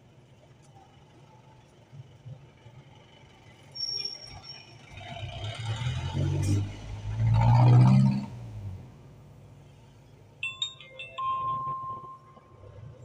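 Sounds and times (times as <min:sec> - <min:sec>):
brief high-pitched squeal: 0:03.7 - 0:04.8
vehicle engine passing by: 0:04.8 - 0:09.0.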